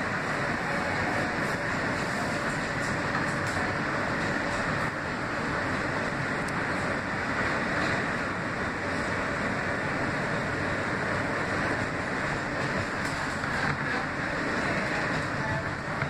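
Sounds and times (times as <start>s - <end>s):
subway wheels rumbling on rails: 0.0s - 16.0s.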